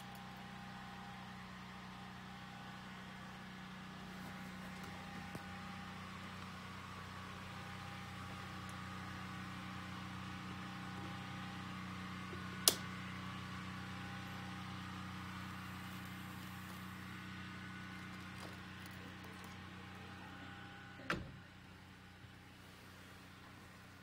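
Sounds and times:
low mechanical hum: 0:00.0 - 0:24.0
sharp click: 0:12.6 - 0:12.8.

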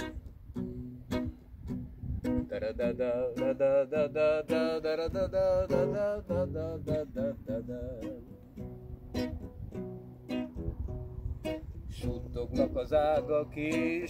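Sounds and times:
acoustic guitar strummed and picked: 0:00.0 - 0:14.0
man's wordless singing: 0:02.4 - 0:08.5, 0:11.9 - 0:14.0.

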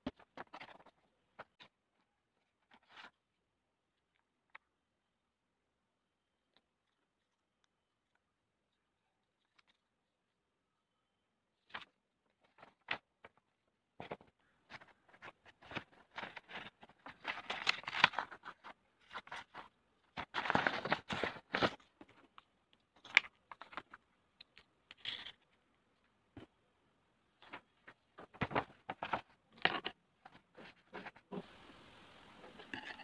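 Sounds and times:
paper rustling: 0:14.0 - 0:24.0, 0:27.4 - 0:31.4.

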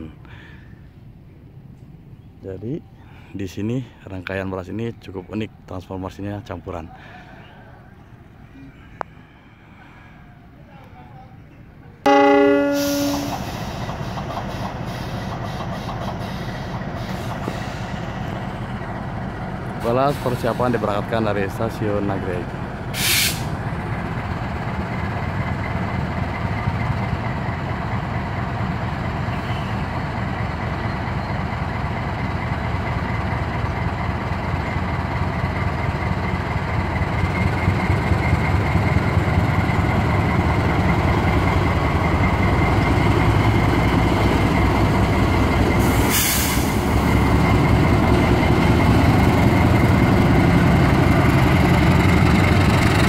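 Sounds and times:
diesel locomotive engine under load: 0:00.0 - 0:53.0
air hiss burst: 0:23.0 - 0:23.5, 0:45.9 - 0:46.9.

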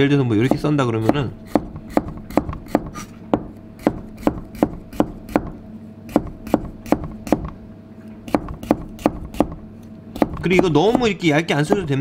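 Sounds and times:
knife tapping on cutting board: 0:06.1 - 0:07.6, 0:10.2 - 0:12.0.

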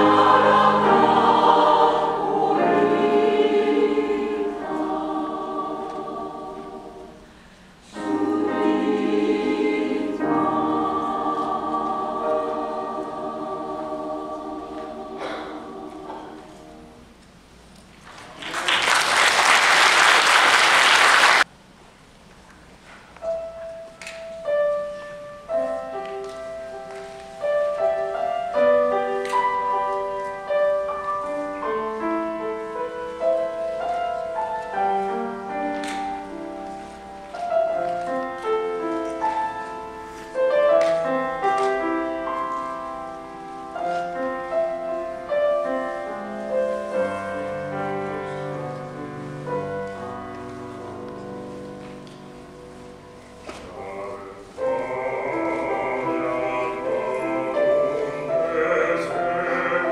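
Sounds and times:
piano melody over chords: 0:00.0 - 0:07.3, 0:23.2 - 0:53.6
audience applauding: 0:18.1 - 0:21.5.

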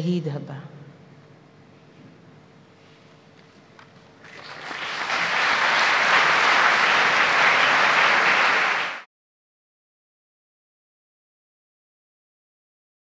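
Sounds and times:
audience applauding: 0:04.2 - 0:09.1.

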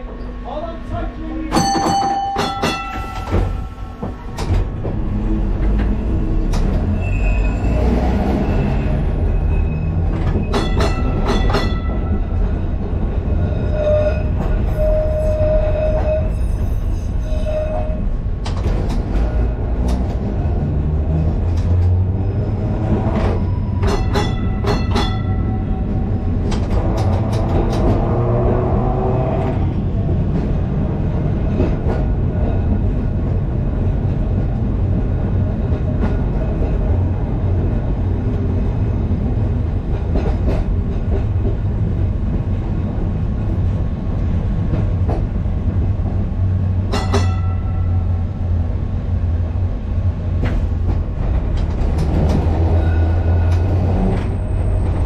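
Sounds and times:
tram wheels rumbling: 0:00.0 - 0:55.0
wheel squeal: 0:06.9 - 0:10.7, 0:13.5 - 0:18.1
clanks and rattles: 0:26.4 - 0:28.2.

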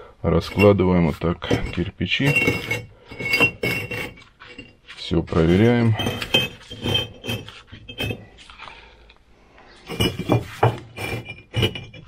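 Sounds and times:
bricks clinking together: 0:01.4 - 0:04.8, 0:05.8 - 0:08.3, 0:09.9 - 0:12.0.

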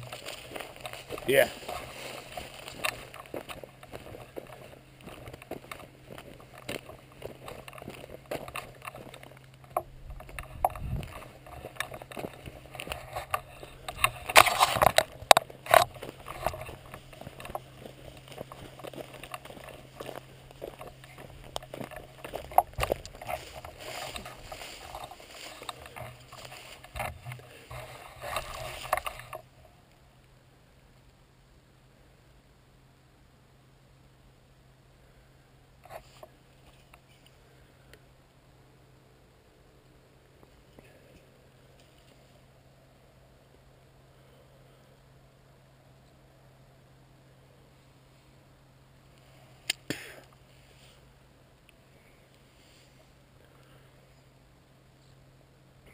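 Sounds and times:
footsteps on dry mud: 0:00.0 - 0:29.5
camera handling noise: 0:06.5 - 0:20.1.

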